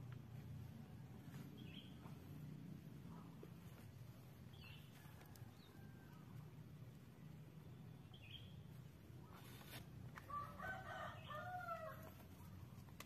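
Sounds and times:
rooster crowing: 10.3s - 12.2s.

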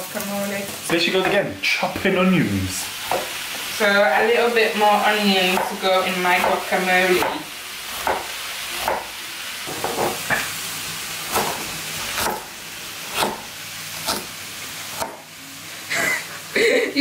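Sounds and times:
food sizzling in a pan: 0.0s - 17.0s
knife chopping on plastic board: 8.0s - 9.1s, 11.3s - 12.5s, 13.1s - 14.3s, 15.0s - 15.2s.

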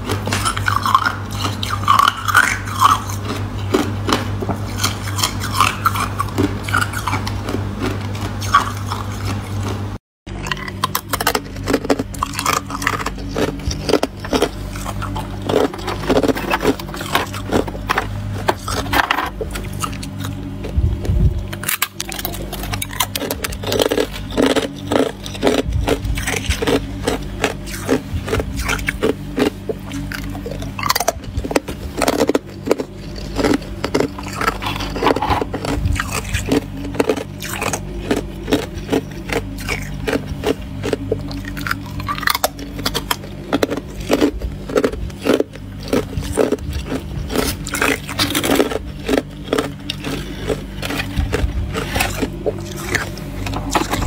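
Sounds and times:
low hum: 0.0s - 54.0s
ice crunched between teeth: 10.4s - 20.8s, 21.4s - 54.0s.

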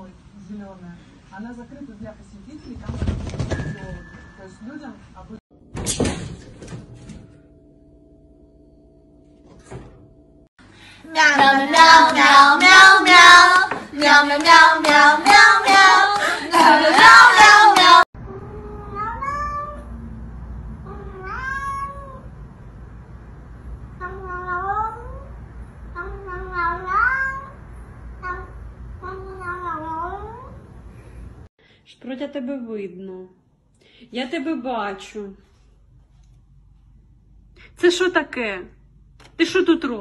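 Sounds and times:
loud voices: 11.1s - 18.0s
cat meowing: 18.3s - 20.0s, 20.8s - 22.3s, 24.0s - 25.3s, 26.0s - 27.6s.

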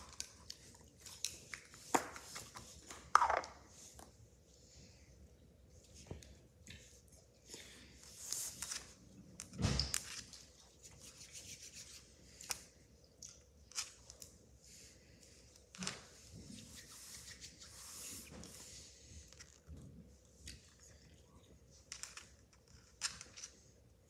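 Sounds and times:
hands rubbing modeling dough: 10.6s - 12.6s, 16.1s - 19.7s.

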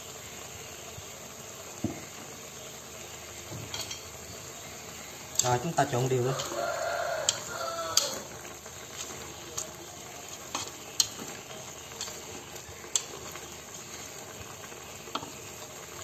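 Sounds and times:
food sizzling faintly in a pot: 0.0s - 16.0s
chopsticks scraping and knocking pot: 6.2s - 13.8s.

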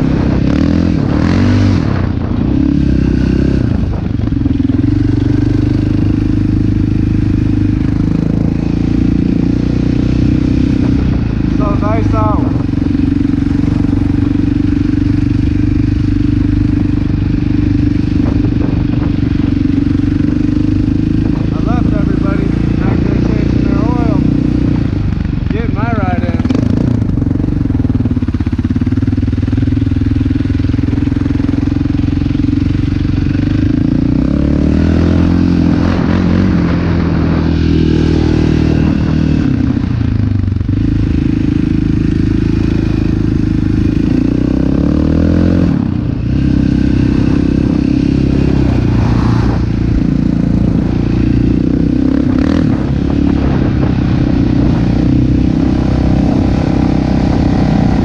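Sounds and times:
quad engine running: 0.0s - 58.0s.

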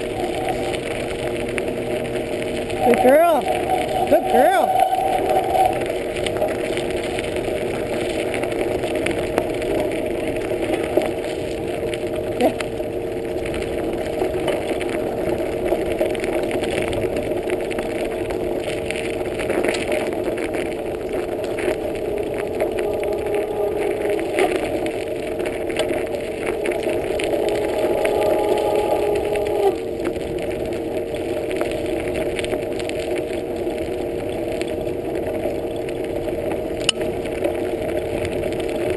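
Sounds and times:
steady hum: 0.0s - 8.5s, 19.5s - 31.4s
bicycle tyres on gravel: 0.0s - 38.9s
small rattles and clicks: 0.0s - 38.9s.

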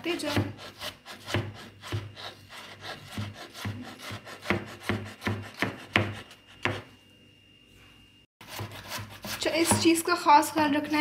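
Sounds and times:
knife chopping on wooden board: 0.1s - 2.3s, 2.9s - 6.9s, 8.4s - 9.9s.

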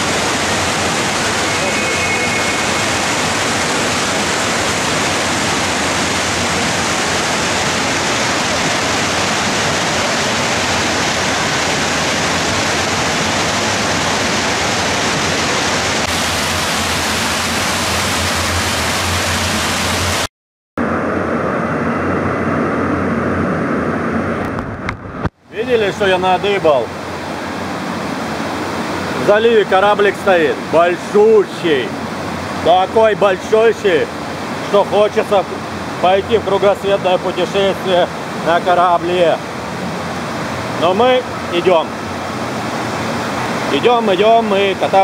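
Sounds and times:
water rushing down slides: 0.0s - 20.3s.

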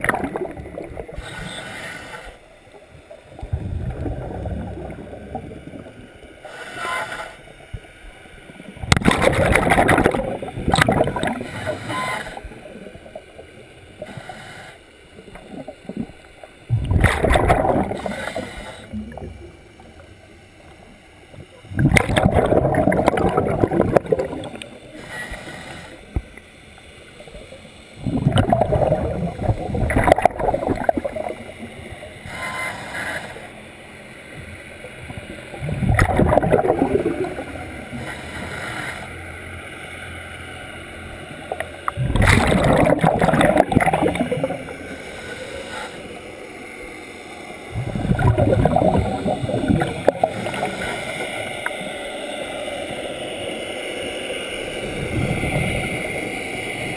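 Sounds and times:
gurgling exhaled bubbles: 0.0s - 1.5s, 3.1s - 6.1s, 8.7s - 14.2s, 15.2s - 20.0s, 21.5s - 25.0s, 28.0s - 32.4s, 35.0s - 38.4s, 41.5s - 45.0s, 47.7s - 51.8s, 54.8s - 56.9s
regulator inhalation hiss: 14.0s - 15.0s, 17.9s - 19.1s, 24.8s - 26.2s.

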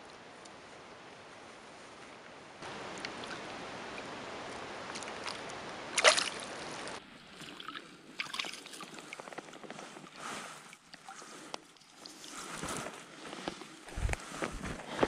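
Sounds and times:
fish splashing in a net: 6.0s - 6.5s.

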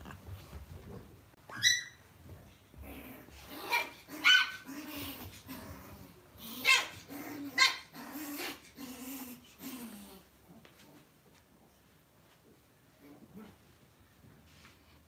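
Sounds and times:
puppies yipping: 1.5s - 2.0s
puppies growling: 2.5s - 11.0s.

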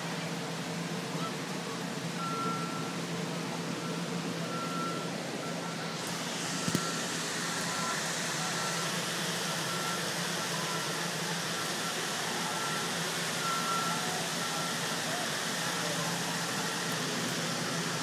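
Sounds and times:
faint high-pitched beeps: 2.2s - 3.0s, 3.8s - 6.0s, 6.6s - 10.8s, 11.6s - 15.2s
heavy rain hiss: 5.0s - 18.0s.

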